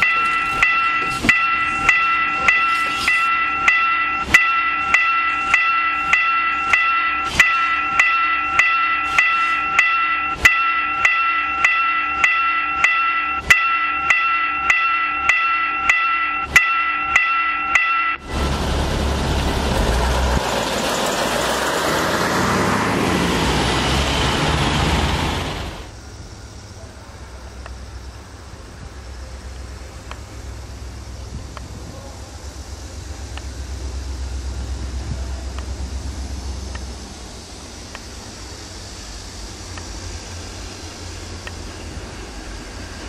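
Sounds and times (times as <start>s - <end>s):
level crossing warning bell: 0.0s - 18.6s.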